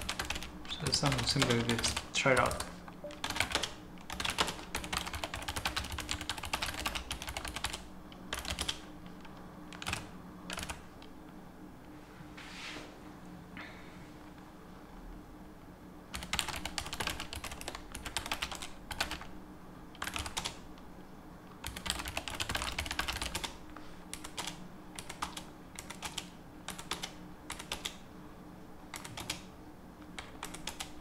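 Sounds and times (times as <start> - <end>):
computer keyboard typing: 0.0 - 10.8, 16.1 - 19.3, 20.0 - 20.6, 21.6 - 28.0, 28.9 - 29.5, 30.2 - 31.0.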